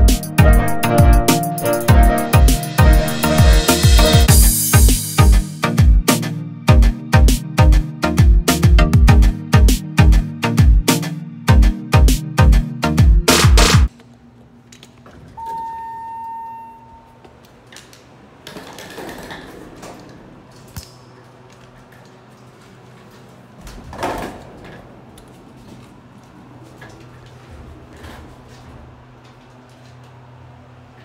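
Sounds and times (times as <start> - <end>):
electronic beep: 15.4 - 17.1
clunks and rustles: 21.6 - 30.2.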